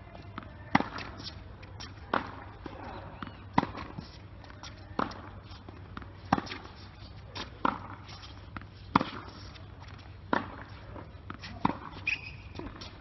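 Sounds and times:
tennis ball bouncing: 0.0s - 13.0s
tennis racket hitting ball: 0.3s - 2.9s, 3.5s - 13.0s.

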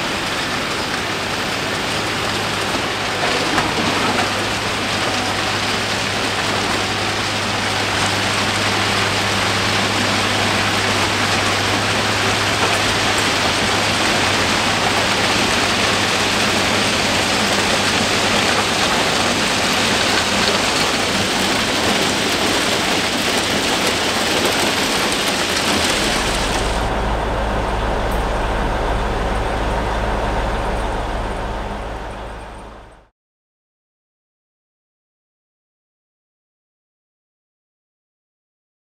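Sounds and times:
dense rushing noise: 0.0s - 33.1s
engine hum: 0.0s - 33.1s.

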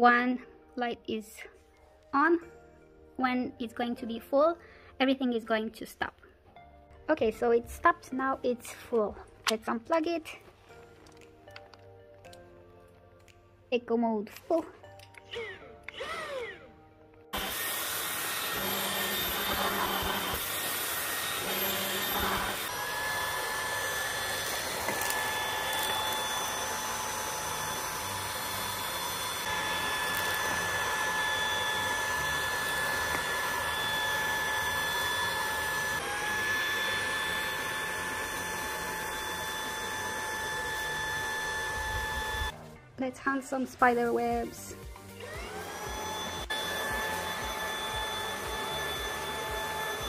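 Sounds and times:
stick vacuum motor whine: 15.3s - 42.6s, 45.2s - 50.0s.

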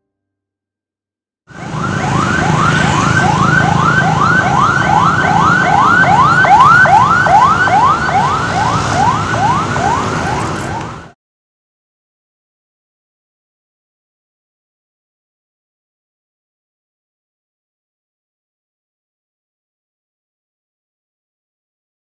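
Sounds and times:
siren yelping: 1.5s - 11.2s.

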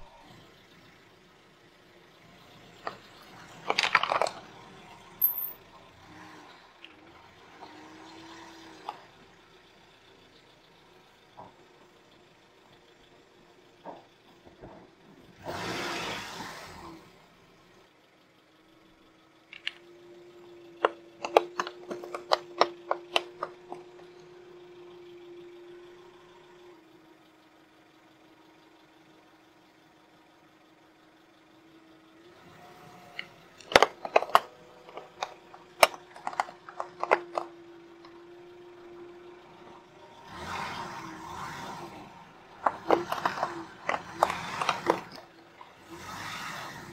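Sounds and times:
car engine hum: 0.0s - 46.9s
nails crackling under tyre: 33.1s - 38.2s, 42.5s - 45.8s
nails cracking and snapping: 33.6s - 37.5s.

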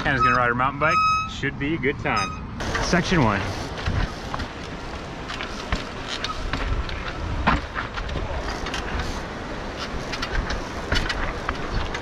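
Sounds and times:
rushing background noise: 0.0s - 12.0s
bicycle knocking on rocks: 3.7s - 12.0s.

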